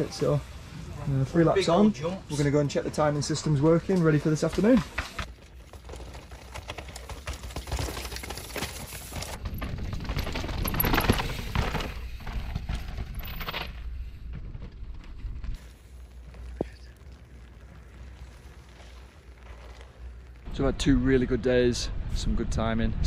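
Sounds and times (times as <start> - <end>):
mountain bikes clattering over rocks: 2.3 - 20.6
wind rumble on microphone: 20.5 - 23.0.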